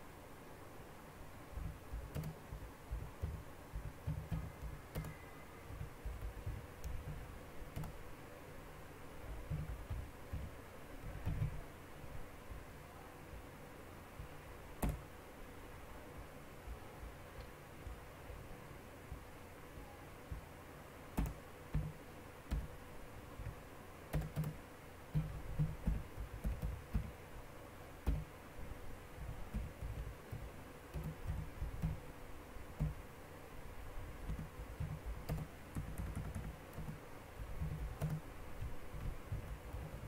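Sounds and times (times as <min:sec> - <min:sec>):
keyboard typing: 0:01.5 - 0:08.0, 0:09.3 - 0:11.6, 0:14.8 - 0:15.0, 0:21.2 - 0:22.8, 0:23.4 - 0:27.2, 0:28.0 - 0:28.3, 0:29.2 - 0:32.0, 0:32.8 - 0:33.0, 0:34.2 - 0:40.0.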